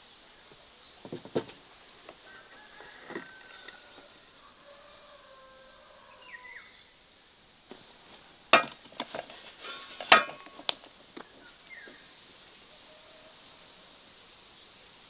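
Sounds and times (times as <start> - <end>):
insect hum: 0.0 - 15.0.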